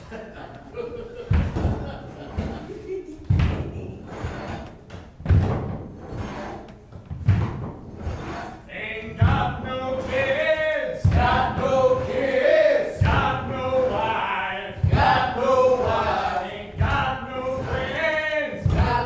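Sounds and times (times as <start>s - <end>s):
heavy thud on the beat: 1.3s - 2.1s, 3.3s - 3.8s, 5.2s - 5.8s, 9.1s - 10.2s, 11.0s - 14.1s, 14.7s - 16.1s, 16.7s - 19.0s
men singing a cappella: 8.7s - 19.0s.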